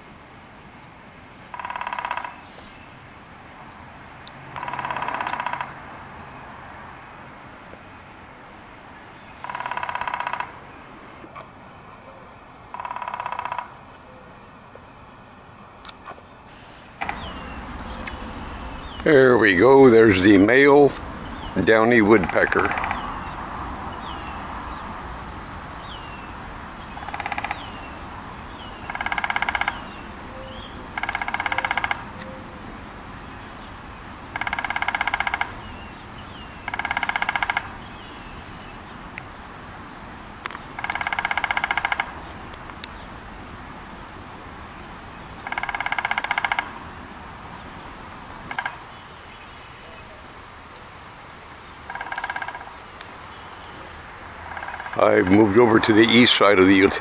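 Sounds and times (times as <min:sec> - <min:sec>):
woodpecker drumming on wood: 0:01.5 - 0:02.6, 0:04.5 - 0:05.8, 0:09.4 - 0:11.4, 0:12.7 - 0:13.9, 0:17.0 - 0:23.4, 0:25.9 - 0:30.1, 0:30.9 - 0:32.2, 0:34.3 - 0:38.1, 0:40.5 - 0:43.0, 0:45.3 - 0:46.9, 0:48.4 - 0:49.0, 0:51.8 - 0:52.8, 0:54.4 - 0:56.6
small birds chirping: 0:15.8 - 0:39.6, 0:47.4 - 0:57.0.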